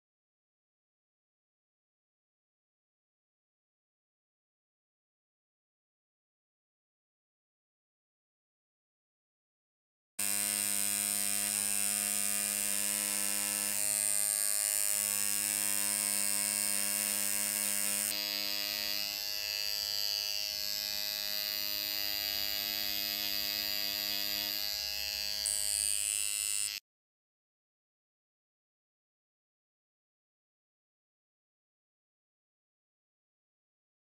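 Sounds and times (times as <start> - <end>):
tattoo machine buzzing: 10.2 - 26.8.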